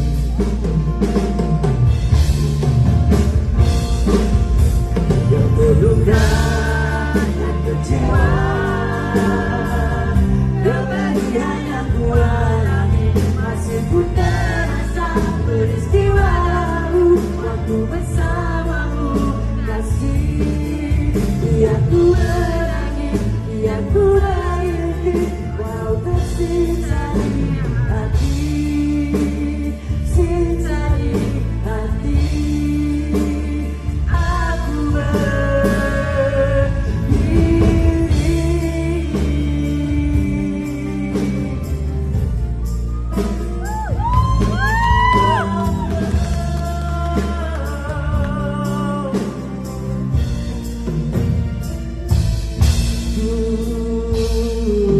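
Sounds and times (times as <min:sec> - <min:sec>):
live band accompaniment: 0:00.0 - 0:54.9
man singing a ballad into microphone: 0:05.0 - 0:42.4, 0:44.2 - 0:50.3, 0:53.0 - 0:54.9.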